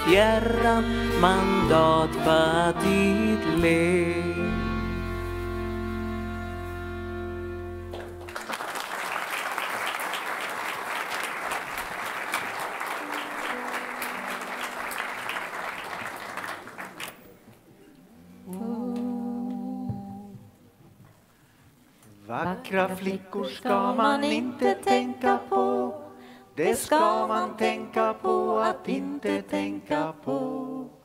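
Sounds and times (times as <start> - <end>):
music: 0.0 - 8.5, 12.6 - 16.2, 22.5 - 31.0
audience applauding: 7.9 - 17.4.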